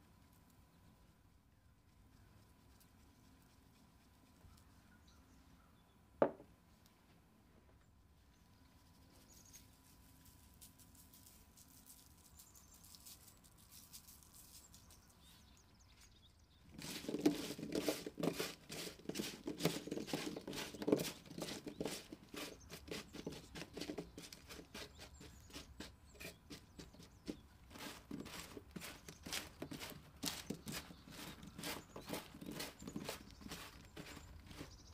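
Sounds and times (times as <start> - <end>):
powder sprinkling patter: 9.0 - 15.5, 16.7 - 34.9
paper rustling: 16.7 - 24.7.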